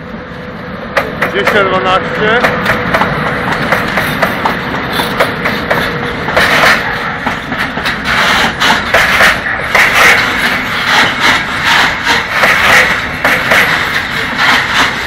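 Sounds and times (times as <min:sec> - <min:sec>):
steady locomotive hum: 0:00.0 - 0:15.0
wheels clattering over rail joints: 0:00.9 - 0:15.0.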